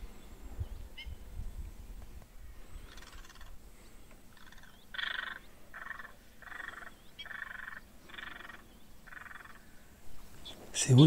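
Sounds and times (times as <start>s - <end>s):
frogs croaking: 2.7s - 10.0s.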